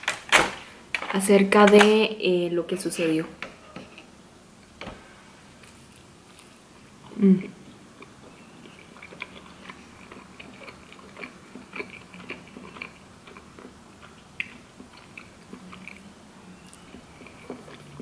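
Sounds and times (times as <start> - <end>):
chewing mouth clicks and smacks: 8.0 - 16.0.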